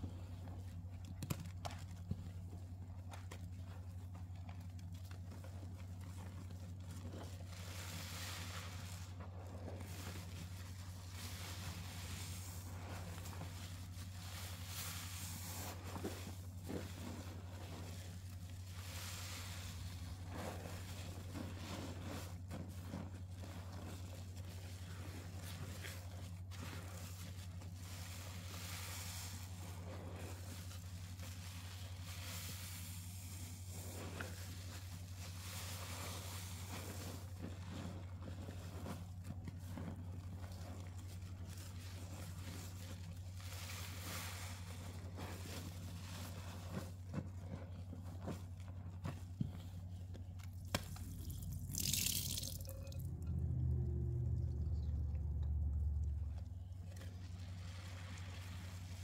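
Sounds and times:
sponge squeezed wet crackles: 3.0 - 59.0
hissing crackle of foam: 7.1 - 39.0.

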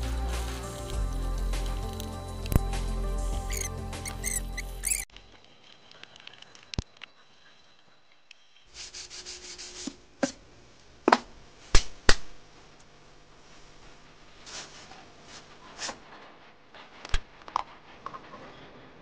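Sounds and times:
sandpaper rubbing on wood: 8.8 - 10.0.

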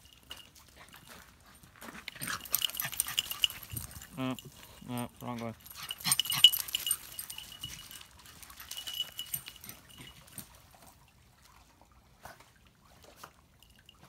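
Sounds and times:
small collar bell jingling: 0.0 - 1.2, 2.0 - 10.6.

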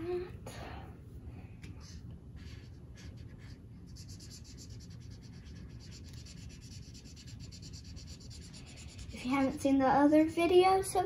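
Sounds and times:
marker scratching on paper: 1.6 - 9.6.

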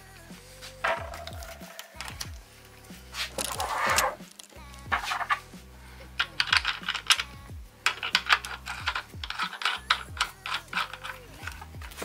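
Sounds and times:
small metal clicks and clinks: 6.2 - 11.8.

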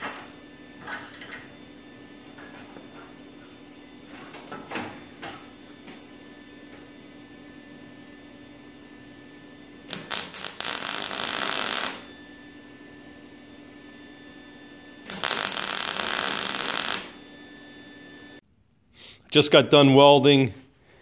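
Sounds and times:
steady hum: 0.0 - 18.9
welding arc crackling sizzle: 9.8 - 12.1, 15.0 - 17.2.

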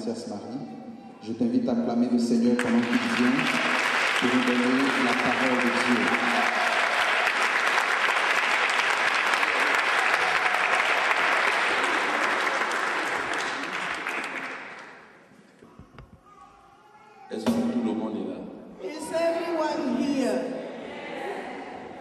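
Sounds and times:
congregation applauding: 2.3 - 15.2.

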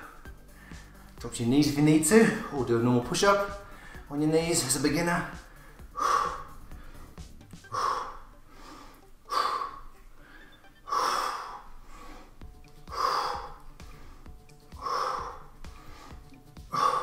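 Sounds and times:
man breathing hard: 0.0 - 1.2, 3.6 - 4.1, 5.4 - 17.0
background music: 0.0 - 17.0.

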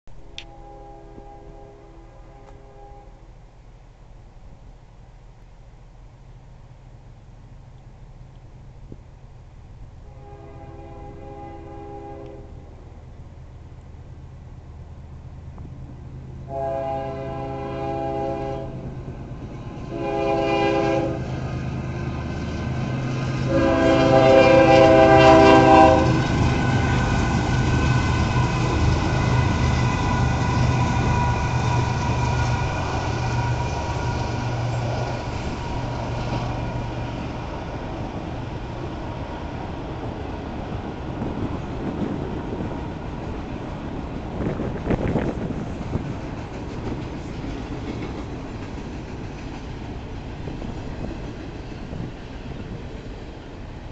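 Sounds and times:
diesel locomotive engine: 0.1 - 53.9
locomotive air horn blasts: 0.3 - 3.3, 10.0 - 12.6, 16.5 - 18.9, 19.9 - 21.3, 23.5 - 27.2
train wheels clacking on rails: 19.4 - 53.4.

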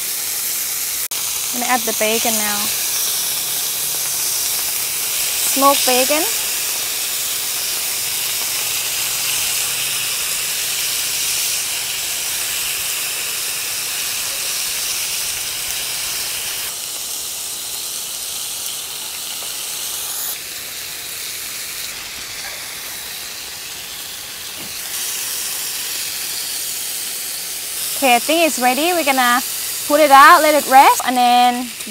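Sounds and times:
meat sizzling in a frying pan: 0.0 - 31.9.

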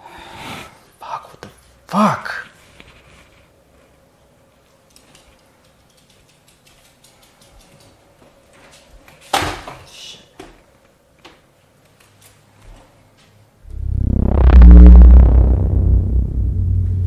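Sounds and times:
faint ticks and rustling: 2.7 - 9.3.

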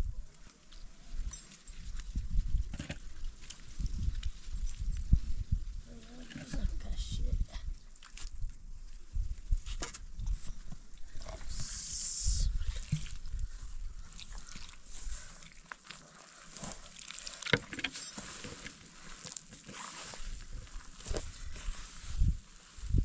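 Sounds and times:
hands kneading wet dough: 12.4 - 23.0.

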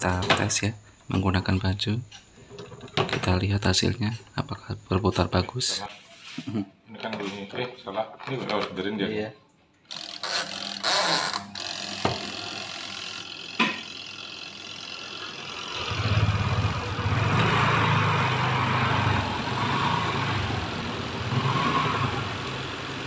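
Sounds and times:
spin dryer drum spinning: 10.0 - 23.0.

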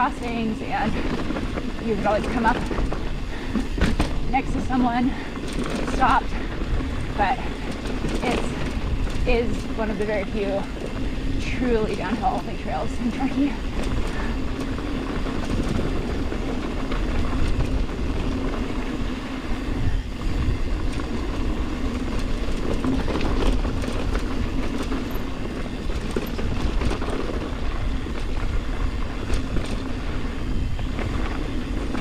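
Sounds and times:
bike clicks and rattles: 0.0 - 32.0
bike tyres rumbling on dirt: 0.0 - 32.0.

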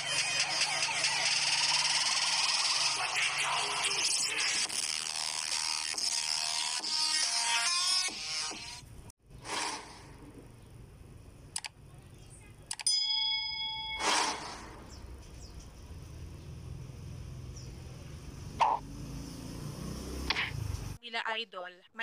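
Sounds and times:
bell ding: 12.8 - 14.0.

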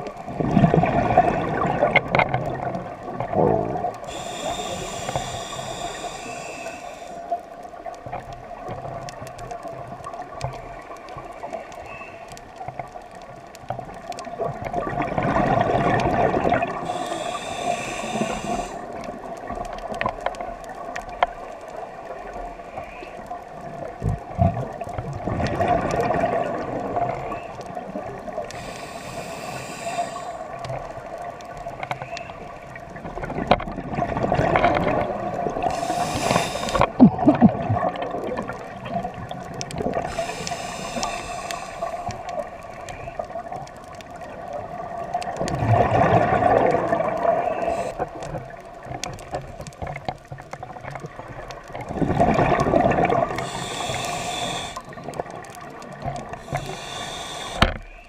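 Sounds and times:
rush of exhaled bubbles: 0.0 - 7.2, 14.2 - 19.4, 24.4 - 30.3, 33.1 - 42.0, 44.6 - 48.5, 50.8 - 57.7
regulator inhalation hiss: 4.1 - 7.4, 16.8 - 18.9, 28.5 - 30.6, 35.6 - 36.9, 40.0 - 42.4, 47.5 - 48.0, 53.4 - 54.8, 56.4 - 58.0.

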